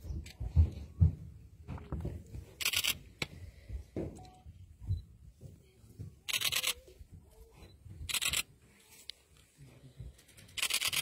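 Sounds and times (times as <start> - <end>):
camera shutter clicks: 10.6 - 11.0.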